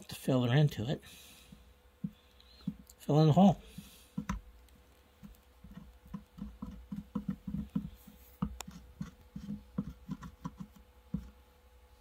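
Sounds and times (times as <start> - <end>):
welding iron tapping on plastic: 1.5 - 3.0, 3.6 - 11.4.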